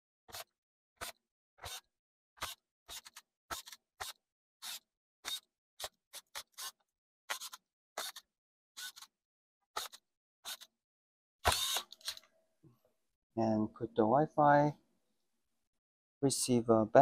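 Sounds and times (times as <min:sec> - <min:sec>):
electric screwdriver clicks and scrapes: 0:02.4 - 0:09.1, 0:09.8 - 0:10.7, 0:11.4 - 0:12.3.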